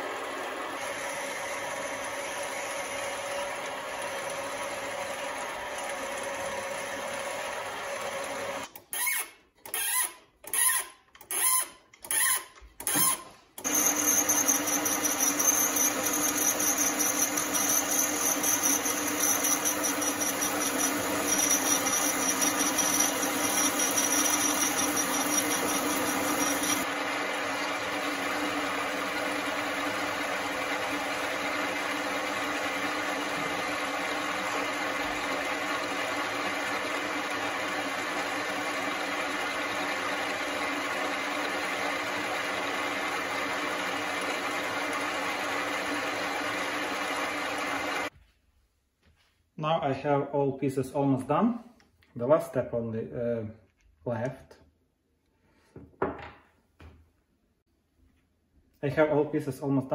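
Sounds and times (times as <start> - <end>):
cutting tool high whine: 0.0 - 48.1
drill boring into metal: 0.1 - 48.1
metal lathe running: 13.6 - 48.1.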